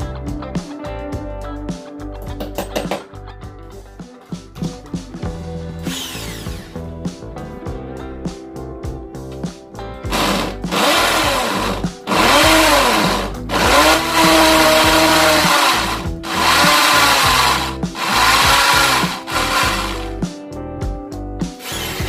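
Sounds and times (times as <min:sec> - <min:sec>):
electric drill boring into wall: 0:05.8 - 0:06.8, 0:10.1 - 0:20.2, 0:21.6 - 0:22.0.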